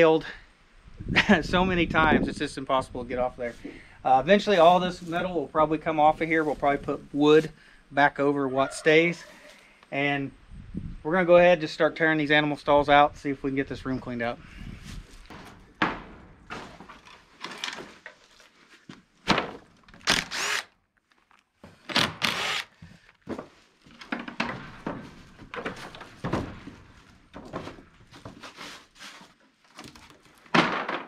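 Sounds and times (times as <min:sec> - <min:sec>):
wood creaking: 0:14.4 - 0:31.0
wooden boards knocking: 0:15.4 - 0:17.0, 0:24.1 - 0:27.8, 0:30.5 - 0:31.0.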